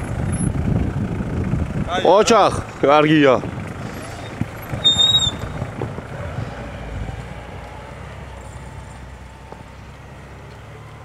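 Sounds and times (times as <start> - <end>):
car engine running: 0.0 - 11.0
tyres crunching through snow: 3.2 - 10.8
high whistle: 4.2 - 5.6.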